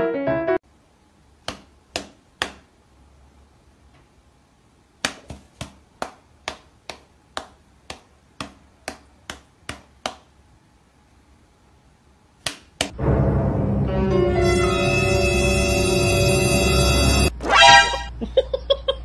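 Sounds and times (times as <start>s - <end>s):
music: 0.0s - 0.6s, 13.0s - 18.0s.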